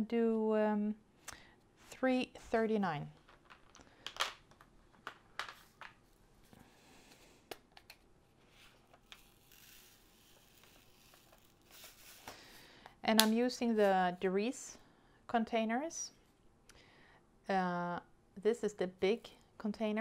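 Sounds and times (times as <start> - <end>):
small bag crinkling: 8.8 - 12.6.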